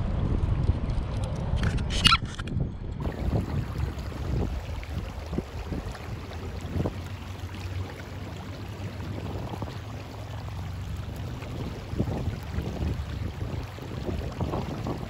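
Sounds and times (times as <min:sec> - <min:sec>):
wind rumbling on microphone: 0:00.0 - 0:15.0
faint splashes: 0:03.0 - 0:15.0
shallow river water sloshing: 0:03.0 - 0:15.0.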